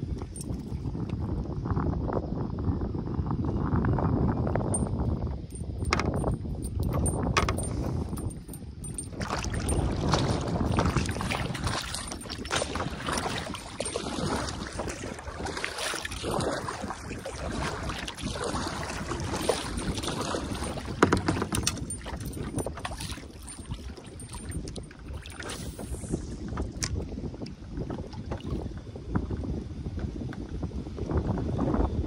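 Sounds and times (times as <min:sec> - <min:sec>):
wind noise on microphone: 0:00.0 - 0:32.0
waves lapping against kayak hull: 0:05.5 - 0:29.4.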